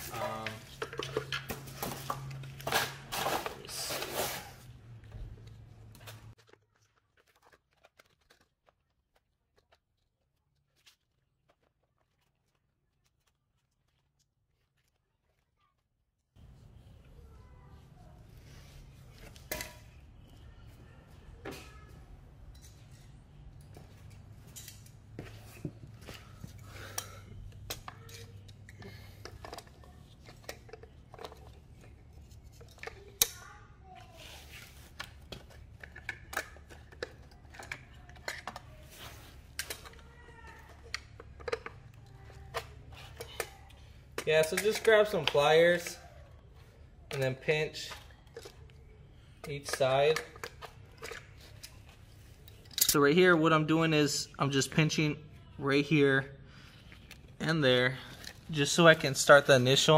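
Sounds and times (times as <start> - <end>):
plastic and foam rustling: 0.0 - 22.0, 29.3 - 47.1.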